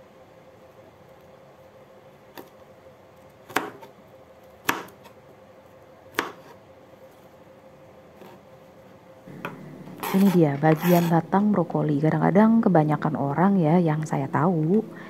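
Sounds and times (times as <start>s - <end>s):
faint steady hum: 0.0s - 15.0s
knife chopping on cutting board: 3.5s - 3.9s, 4.6s - 5.1s, 6.1s - 6.6s, 9.4s - 11.1s.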